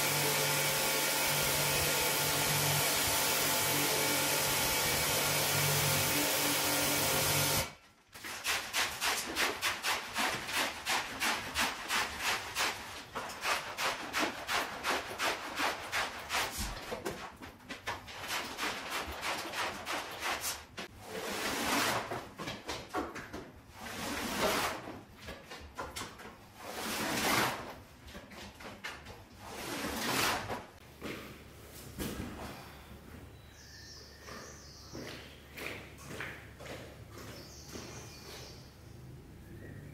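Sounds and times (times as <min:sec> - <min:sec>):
brush scrubbing rug: 0:08.2 - 0:22.3, 0:23.7 - 0:25.1, 0:26.6 - 0:30.8.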